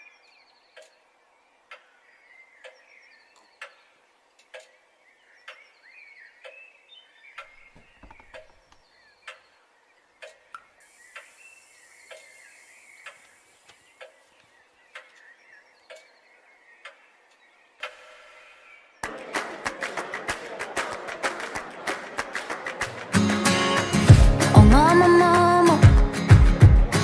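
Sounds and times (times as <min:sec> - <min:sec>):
faint high chirping: 0:04.6 - 0:18.9.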